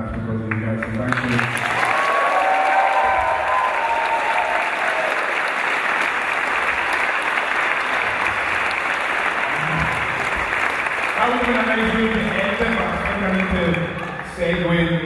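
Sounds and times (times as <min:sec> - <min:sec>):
audience applauding: 0:00.5 - 0:15.0.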